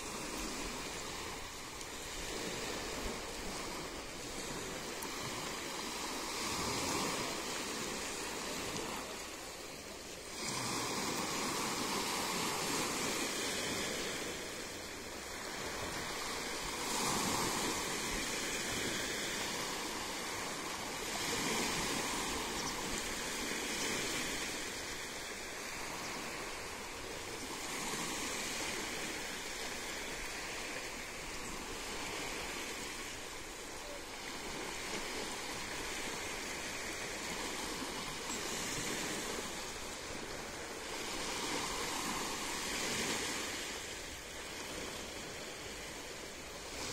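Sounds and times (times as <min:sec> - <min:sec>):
small waves washing over rocks: 0:00.0 - 0:46.9.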